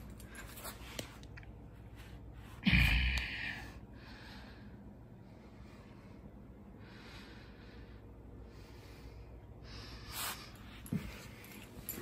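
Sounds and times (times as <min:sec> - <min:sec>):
soft breathing: 0:00.0 - 0:12.0
person snorting: 0:02.6 - 0:03.6.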